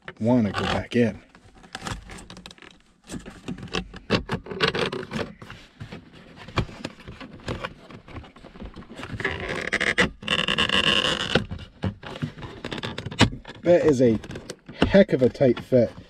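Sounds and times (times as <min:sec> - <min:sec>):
squealing plastic scrape: 0:00.1 - 0:16.0
plastic clicks and knocks: 0:01.6 - 0:16.0.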